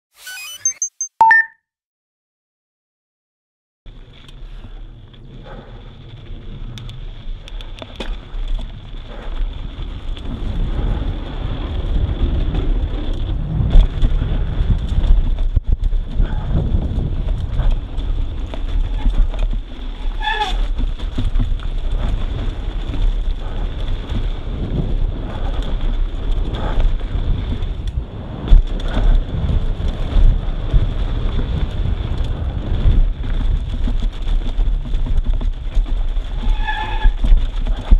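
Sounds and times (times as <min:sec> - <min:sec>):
brief squeal: 0:00.2 - 0:01.5
tyres rumbling over dirt: 0:03.9 - 0:37.9
wind buffeting microphone: 0:05.0 - 0:37.9.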